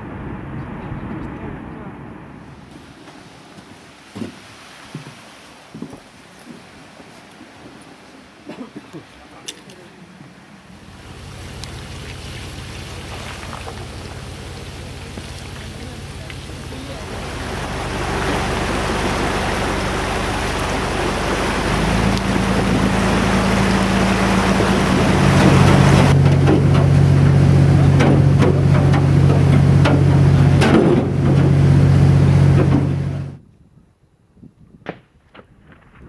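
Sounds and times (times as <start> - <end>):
hull rushing through sea ice: 0.0 - 33.4
boat engine drone: 8.0 - 33.4
ice knocking on hull: 20.9 - 33.4.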